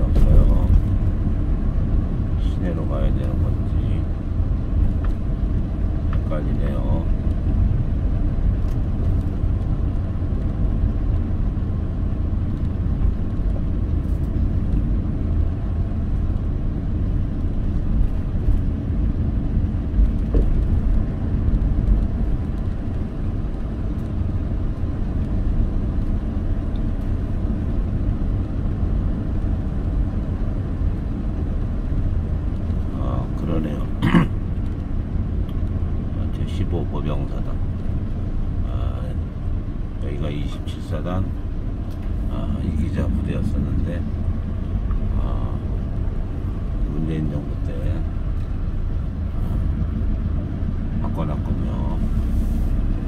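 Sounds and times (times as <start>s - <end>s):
car engine and tyre rumble: 0.0s - 53.0s.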